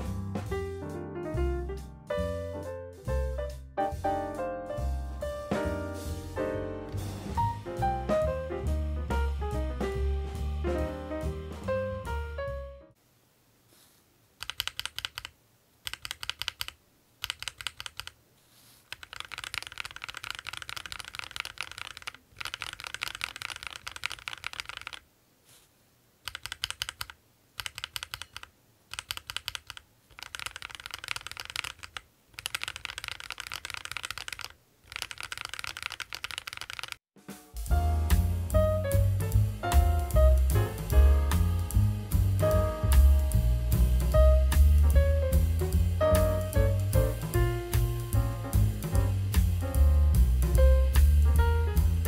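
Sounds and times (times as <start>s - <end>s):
mechanical keyboard key clacks: 14.4s - 18.2s, 18.9s - 25.0s, 26.2s - 37.0s.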